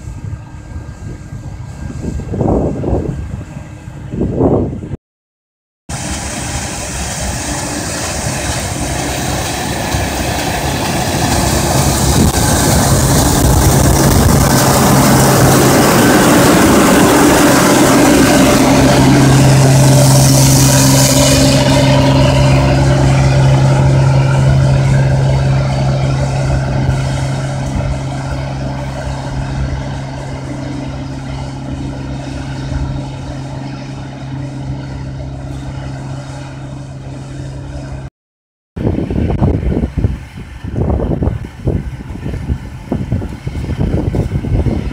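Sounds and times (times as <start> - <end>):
rushing hiss: 5.9 - 22.5
cotton picker engine hum: 5.9 - 38.1.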